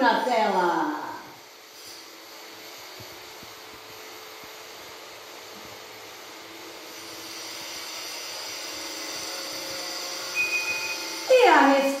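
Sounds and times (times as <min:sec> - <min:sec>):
faint high tones: 0:10.3 - 0:11.4.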